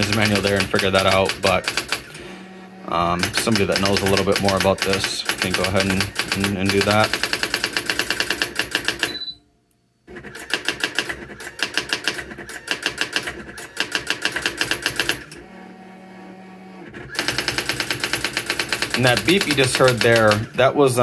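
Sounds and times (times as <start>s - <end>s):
typewriter print wheel strikes: 0.0s - 2.2s, 3.2s - 9.2s, 10.2s - 15.4s, 17.1s - 20.5s.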